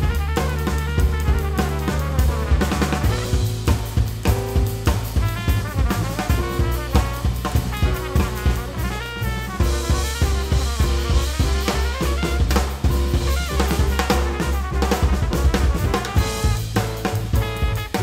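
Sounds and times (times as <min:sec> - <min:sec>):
backing track with bass line: 0:00.0 - 0:18.0
snare and bass drum groove: 0:00.0 - 0:18.0.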